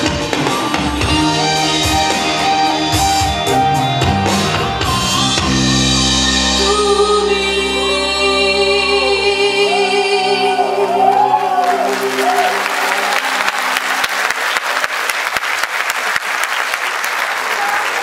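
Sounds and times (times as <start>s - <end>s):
audience applauding: 11.0s - 18.0s.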